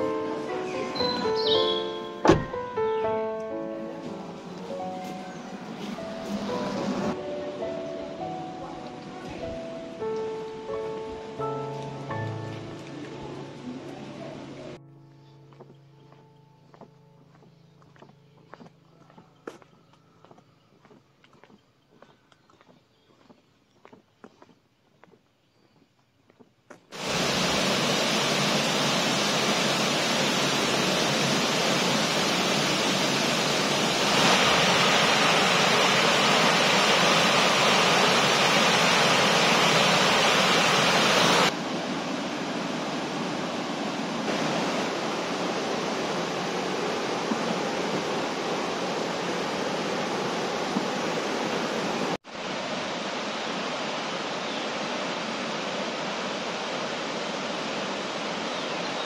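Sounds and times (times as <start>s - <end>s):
stream water cascading over rocks: 4.1s - 8.2s, 26.9s - 59.0s.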